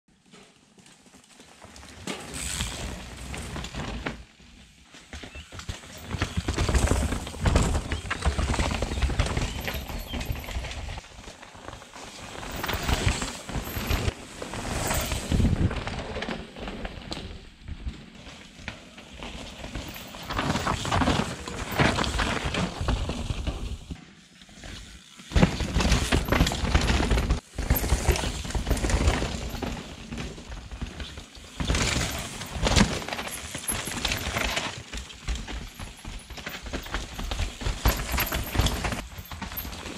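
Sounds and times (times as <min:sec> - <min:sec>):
bikes knocking and rattling: 0:00.1 - 0:39.9
bike tyres crunching over stones: 0:00.2 - 0:39.9.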